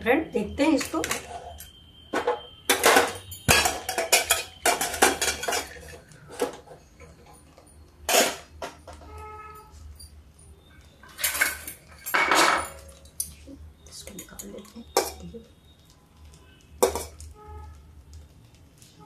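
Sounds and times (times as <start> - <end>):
metal lid clanking and scraping: 0.8 - 1.6, 2.2 - 7.2, 8.1 - 9.1, 11.0 - 13.0.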